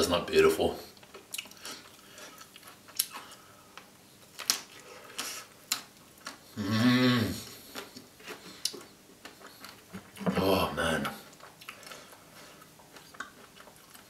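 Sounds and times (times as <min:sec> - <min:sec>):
person humming mmm: 0:06.6 - 0:07.5.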